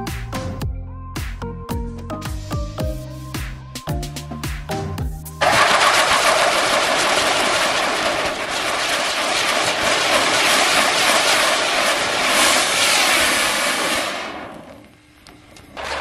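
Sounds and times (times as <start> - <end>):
firecracker sparks hissing: 5.4 - 15.0.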